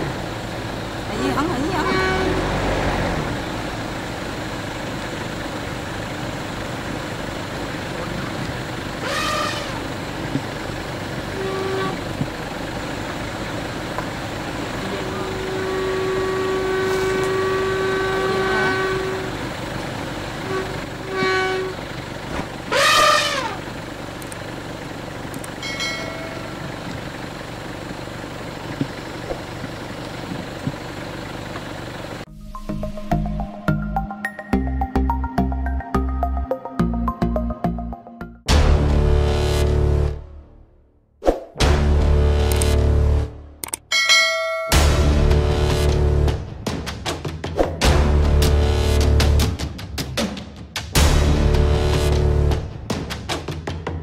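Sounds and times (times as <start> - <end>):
vehicle running: 0.0 - 54.0
voices: 1.1 - 2.4
horn blasts: 1.2 - 2.8, 9.0 - 10.0, 11.2 - 12.3, 14.7 - 19.6, 20.3 - 21.9, 22.7 - 23.7, 25.7 - 26.8.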